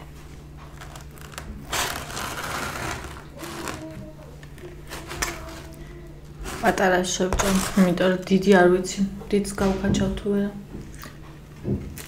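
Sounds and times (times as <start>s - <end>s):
pizza tearing by hand: 0.7s - 5.7s.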